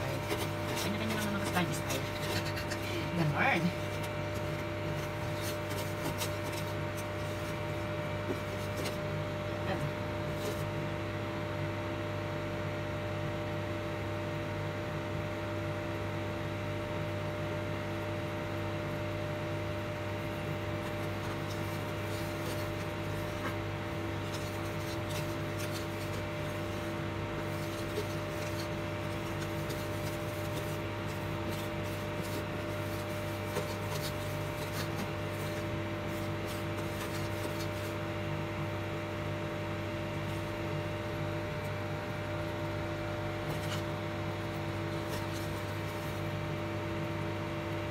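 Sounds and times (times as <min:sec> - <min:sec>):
wooden spoon scraping a pot: 0:00.0 - 0:09.1, 0:20.1 - 0:38.4
induction cooktop hum: 0:00.0 - 0:47.9.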